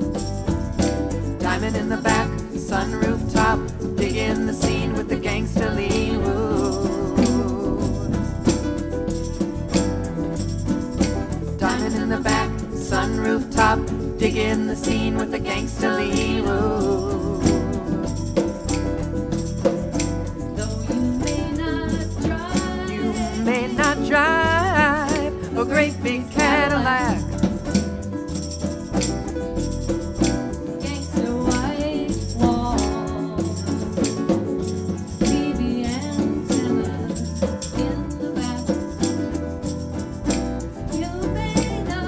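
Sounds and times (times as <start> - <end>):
wavering lead melody: 0.0 - 33.3
live band playing: 0.0 - 42.0
shaker beat: 0.0 - 42.0.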